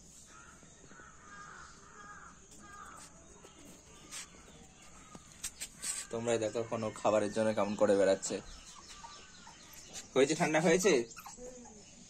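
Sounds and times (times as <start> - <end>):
crows cawing faintly: 0.1 - 7.2.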